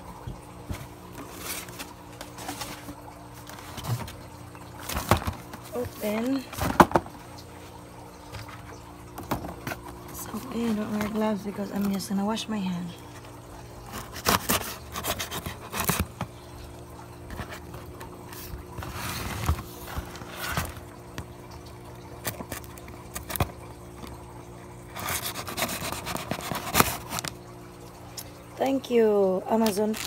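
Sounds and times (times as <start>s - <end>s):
faint steady hum: 0.0s - 30.0s
cardboard scraping and rubbing: 13.9s - 16.2s, 18.4s - 20.8s.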